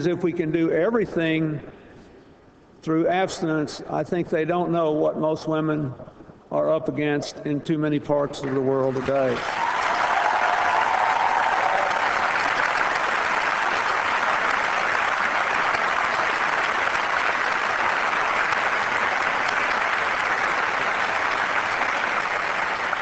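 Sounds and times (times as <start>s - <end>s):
large audience applauding: 8.9s - 23.0s.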